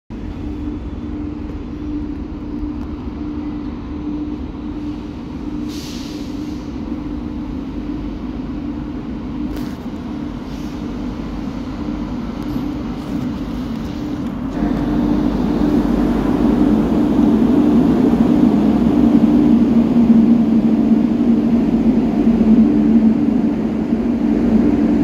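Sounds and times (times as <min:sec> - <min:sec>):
electric locomotive hum and rumble: 0:00.1 - 0:25.0.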